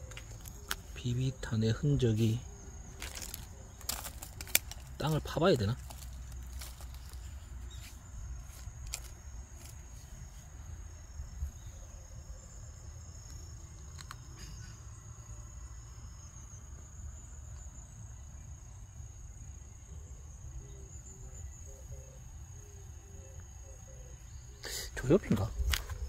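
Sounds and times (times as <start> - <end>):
insects trilling: 0.0 - 26.0.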